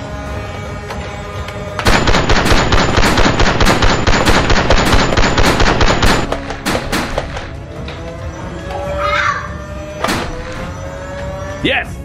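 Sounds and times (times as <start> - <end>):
rapid automatic gunfire: 1.8 - 7.6.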